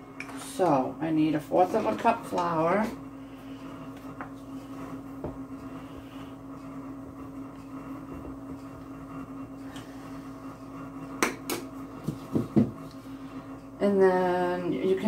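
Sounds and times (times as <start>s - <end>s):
appliance fan hum: 0.0s - 15.0s
plastic cup knocking on table: 12.1s - 12.8s.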